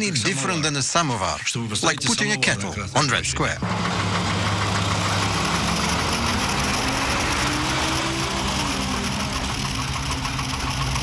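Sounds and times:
armoured vehicle engine running: 2.8s - 11.0s.

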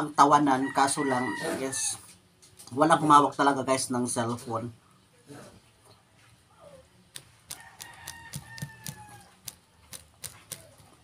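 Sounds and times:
rooster crowing: 0.4s - 2.1s, 7.5s - 9.6s
chewing clicks close to microphone: 7.2s - 10.9s.

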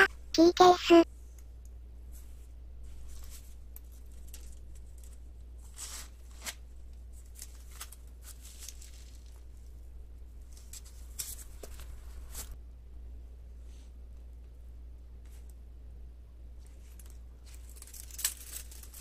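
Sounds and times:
key case rustling and clicking: 17.0s - 19.0s.

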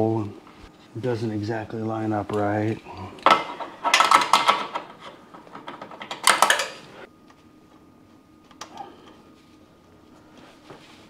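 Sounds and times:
metal parts clattering: 3.3s - 6.9s.

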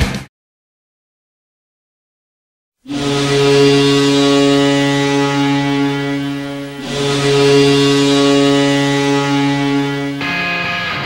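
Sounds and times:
deep goal horn blast: 2.8s - 11.0s.

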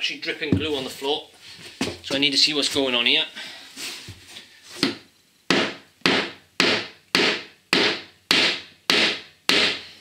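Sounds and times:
hammer knocking wooden wedge: 4.8s - 9.8s.

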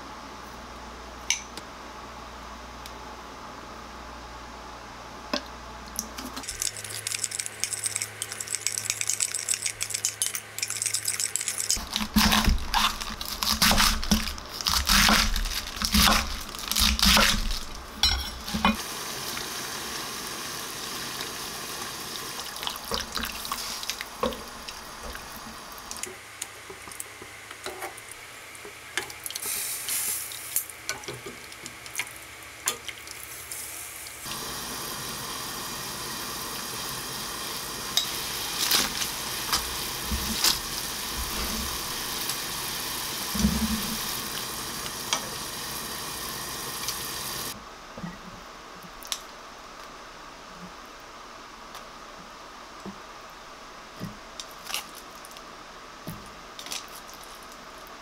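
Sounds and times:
pot of water boiling: 6.4s - 28.2s, 28.9s - 47.6s
knife chopping on wooden board: 11.8s - 17.6s.

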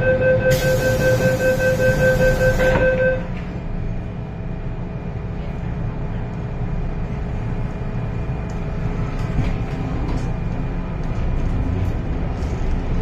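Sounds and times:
door-closing warning beeps: 0.0s - 3.4s
train equipment hum: 0.0s - 13.0s.

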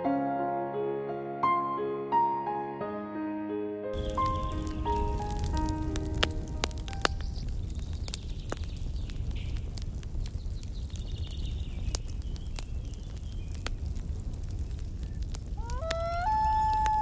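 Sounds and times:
campfire crackling: 3.9s - 17.0s.

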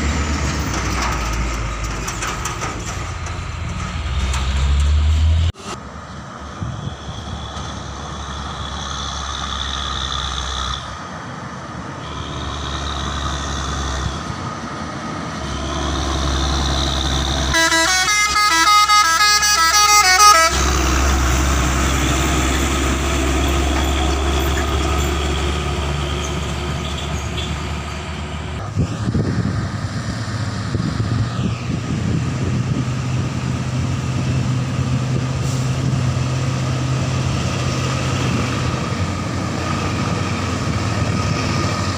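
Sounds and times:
heavy truck engines running: 0.0s - 41.9s
truck passing close by: 0.0s - 41.9s
truck horn with shifting notes: 17.4s - 21.3s.

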